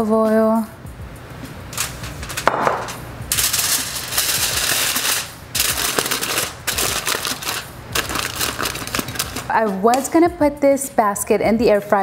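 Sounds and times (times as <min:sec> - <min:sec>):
aluminium foil crinkling: 0:01.8 - 0:10.2.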